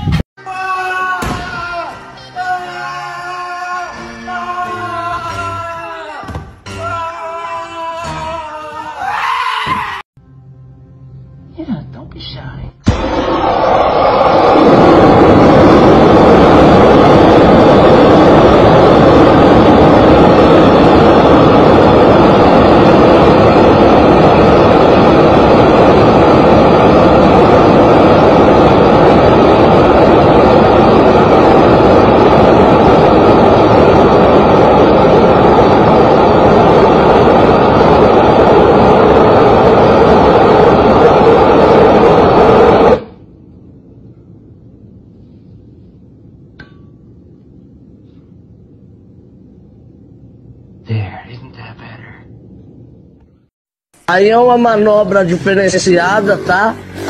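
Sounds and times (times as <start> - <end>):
gas blowtorch roaring: 12.9 - 43.4, 54.1 - 57.0.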